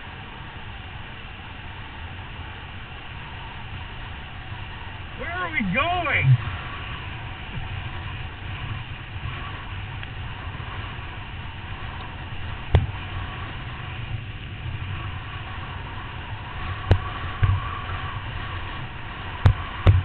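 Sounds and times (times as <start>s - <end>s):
rushing wind: 0.0s - 20.0s.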